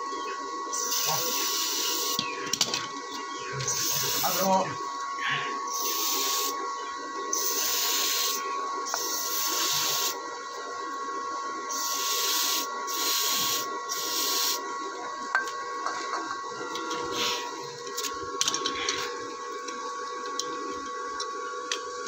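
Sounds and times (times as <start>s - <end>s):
aerosol spray can hissing: 0.8s - 2.2s, 3.7s - 4.5s, 5.7s - 6.6s, 7.4s - 10.2s, 11.7s - 14.6s.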